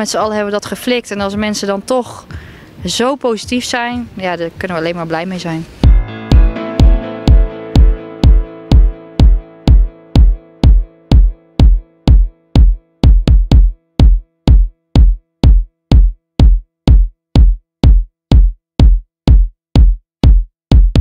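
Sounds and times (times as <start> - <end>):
electronic dance music kick drum: 1.2 - 1.6, 3.4 - 4.2, 5.8 - 21.0
held synth chord: 5.8 - 13.0.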